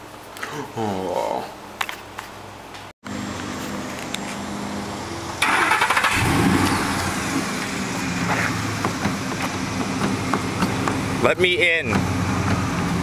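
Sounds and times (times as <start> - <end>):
truck engine starting and idling: 4.7 - 13.0.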